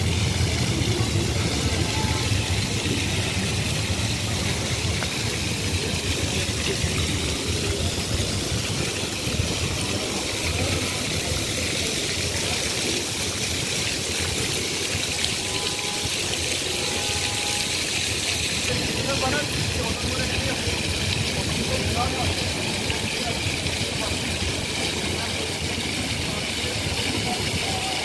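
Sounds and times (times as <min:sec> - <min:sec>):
low steady rumble: 0:00.0 - 0:11.8
fountain water splashing on paving: 0:00.0 - 0:28.0.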